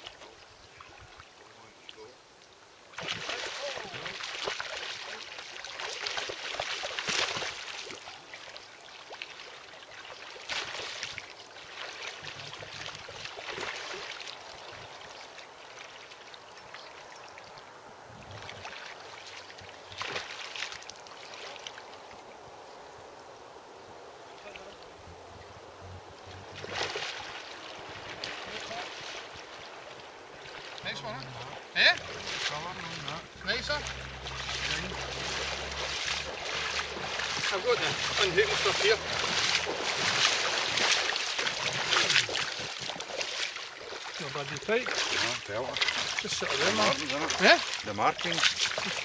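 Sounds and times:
water lapping: 2.8 - 22.2, 24.4 - 49.0
fish thrashing and splashing: 3.0 - 8.3, 32.0 - 49.0.

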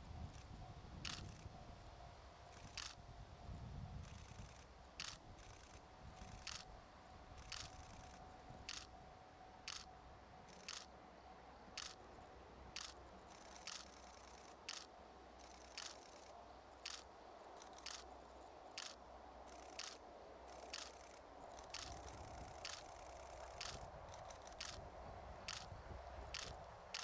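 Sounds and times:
faint steady hum: 0.0 - 27.0
camera shutter clicks: 1.0 - 1.4, 2.6 - 3.0, 4.1 - 6.6, 7.4 - 8.9, 9.7 - 9.9, 10.5 - 10.9, 11.8 - 12.0, 12.7 - 18.1, 18.7 - 24.8, 25.5 - 27.0.

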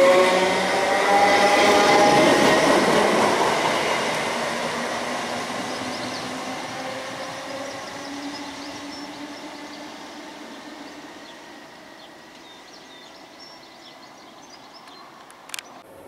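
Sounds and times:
electric train pulling away: 0.0 - 16.0
bird chirps: 5.7 - 6.4, 7.2 - 15.8.

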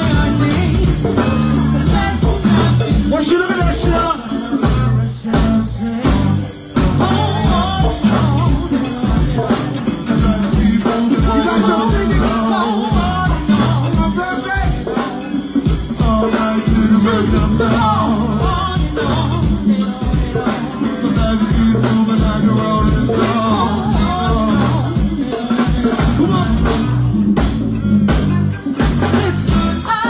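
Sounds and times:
live band percussion groove: 0.0 - 30.0
person singing: 0.0 - 30.0.

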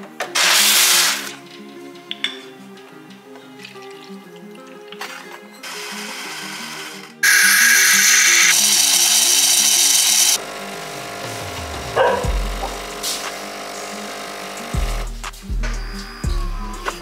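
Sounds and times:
background music: 0.0 - 17.0
espresso machine frothing milk: 5.7 - 15.1
low hum of coffee running: 10.4 - 15.1.

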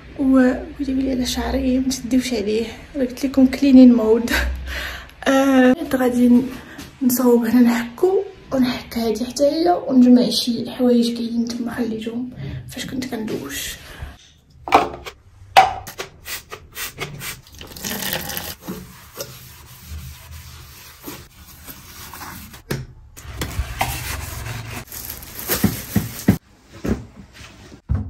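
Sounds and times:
scrubbing strokes: 17.2 - 22.6, 23.5 - 25.6.

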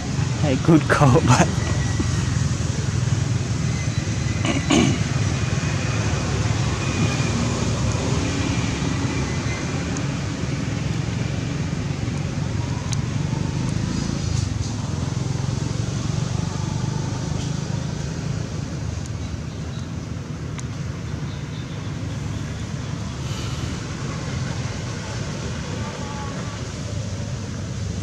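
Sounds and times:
even hiss: 23.1 - 27.4.

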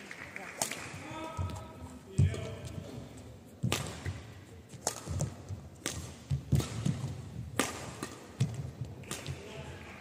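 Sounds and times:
racket striking shuttlecock: 3.6 - 9.6.

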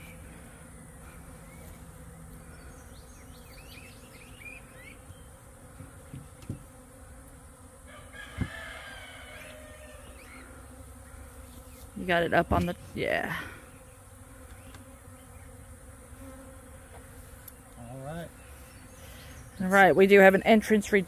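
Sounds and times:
honeybee swarm buzzing: 0.0 - 21.0
bird calls: 2.4 - 5.4
wooden knocks on hive box: 5.7 - 6.7, 8.3 - 8.6.

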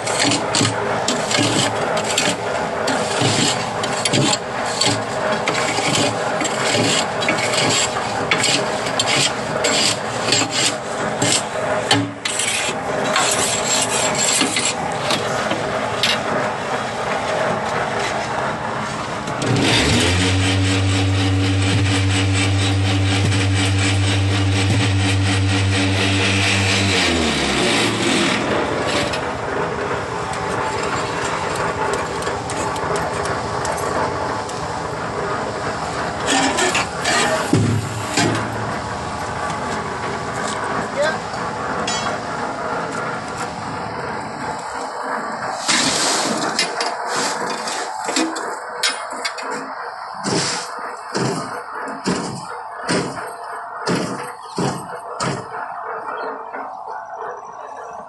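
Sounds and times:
steel rod scraping concrete: 0.0 - 15.3, 19.4 - 29.2, 36.2 - 37.5, 45.6 - 48.0
vibrator motors humming: 0.0 - 58.0.

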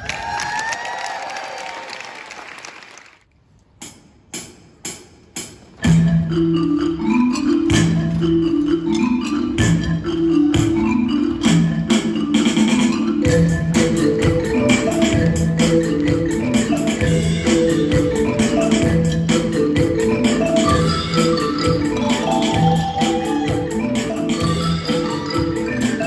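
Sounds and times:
marimba ensemble playing rolled notes: 5.8 - 26.0.

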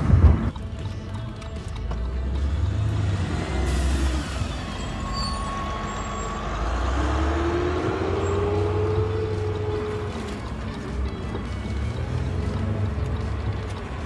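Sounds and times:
car road and engine rumble: 0.0 - 14.0
bus engine whine rising: 2.4 - 14.0.

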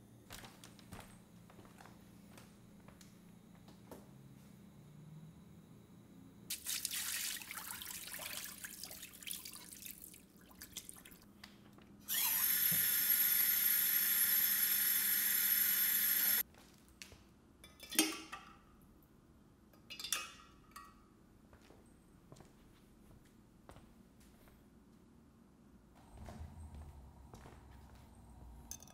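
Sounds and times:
water running into a jug: 6.5 - 11.2
soft uneven water noise: 6.5 - 11.4.

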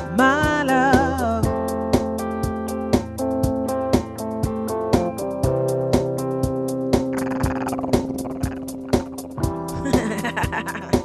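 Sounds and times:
woman singing: 0.0 - 1.6
guitar: 0.0 - 11.0
steady beat with ticks: 1.5 - 11.0.

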